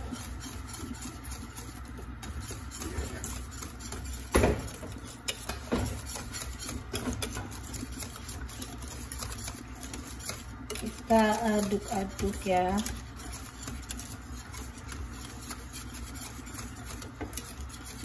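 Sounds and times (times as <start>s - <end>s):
whisk scraping metal pot: 0.0s - 18.0s.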